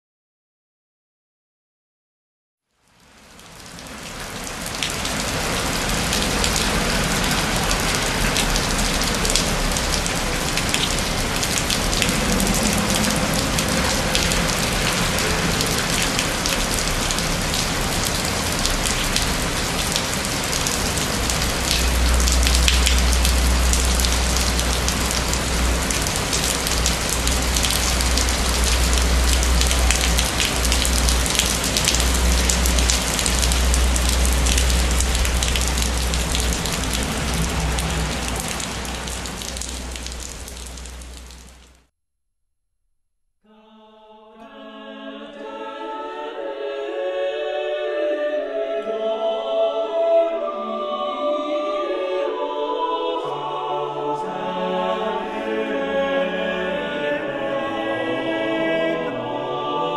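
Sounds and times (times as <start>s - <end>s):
rain pattering on stone: 2.7s - 41.9s
deep rumble: 10.5s - 16.4s.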